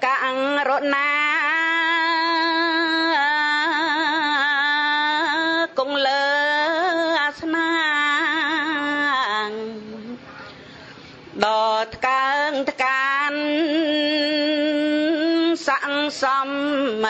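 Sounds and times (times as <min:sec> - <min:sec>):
person singing slow melody: 0:00.0 - 0:10.6.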